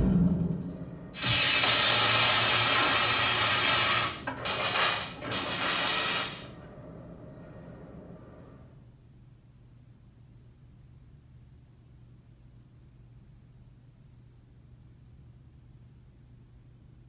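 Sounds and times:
hissing rush sound effect: 1.2s - 4.2s.

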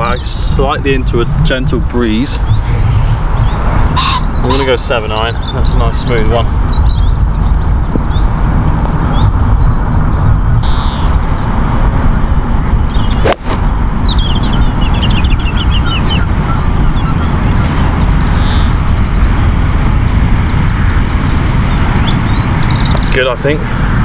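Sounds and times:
birds chirping faintly: 0.0s - 23.6s
wind buffeting microphone: 0.0s - 24.0s
golf club striking ball: 13.1s - 13.7s.

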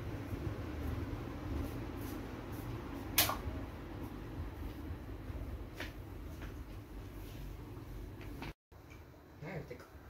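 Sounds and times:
low steady hum: 0.0s - 10.0s
sharp click: 3.2s - 3.4s.

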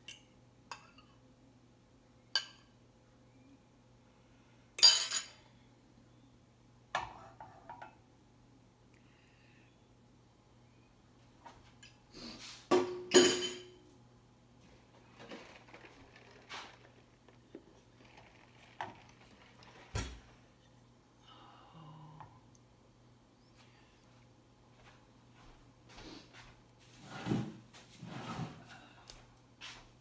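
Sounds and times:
low steady hum: 0.0s - 26.0s
kitchenware clanking: 12.7s - 13.8s, 15.0s - 20.4s
wooden spoon stirring in saucepan: 14.6s - 20.7s.

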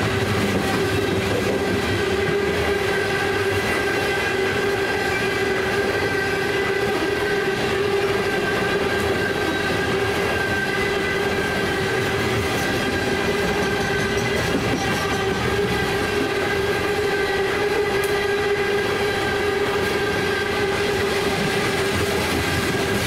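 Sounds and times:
train wheels rumbling on rails: 0.0s - 23.0s
crossing bell ringing: 12.3s - 17.0s.

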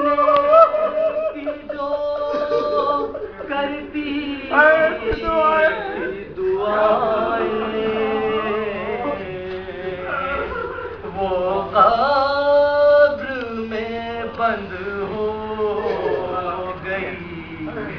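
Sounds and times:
man chanting: 0.0s - 17.9s.

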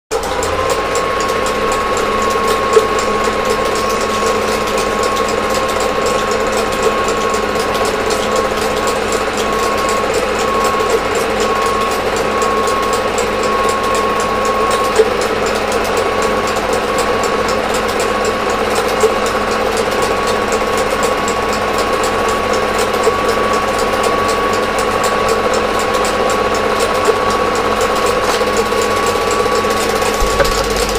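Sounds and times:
film projector clattering: 0.1s - 30.9s
projector whine: 0.1s - 30.9s
projector click: 29.8s - 30.9s.

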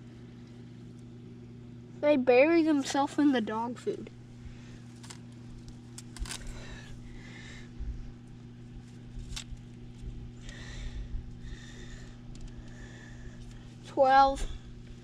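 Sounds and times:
steady low hum: 0.0s - 15.0s
handling rumble: 3.5s - 15.0s
wire mesh trap rattling: 5.9s - 6.6s.

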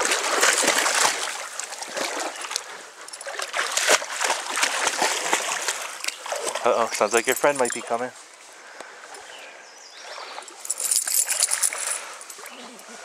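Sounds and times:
dog splashing through water: 0.0s - 7.0s
stream trickling: 0.0s - 13.0s.

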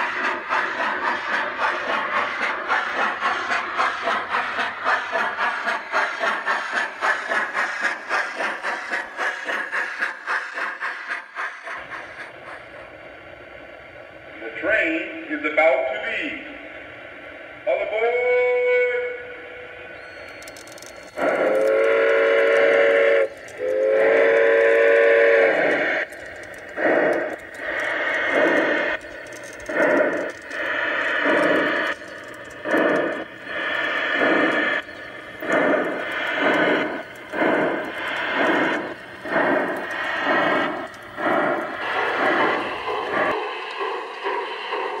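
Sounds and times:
steam locomotive chuffing: 0.0s - 45.0s.

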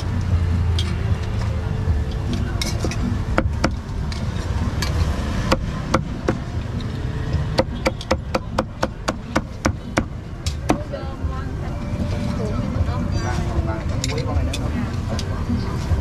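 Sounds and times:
cleaver chopping on wooden block: 5.4s - 6.4s, 7.5s - 10.8s.

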